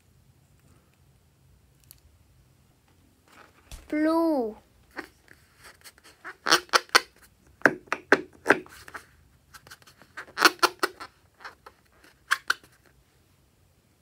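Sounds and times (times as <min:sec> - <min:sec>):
rubber balloon squeaking: 0:04.9 - 0:12.8.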